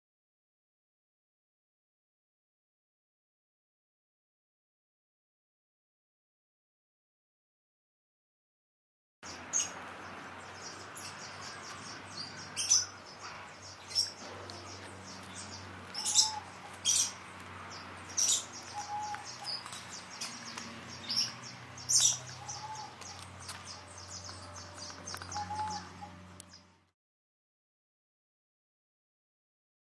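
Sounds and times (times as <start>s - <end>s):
small birds chirping: 9.2s - 26.9s
lower bird call: 11.0s - 17.2s, 18.1s - 26.2s.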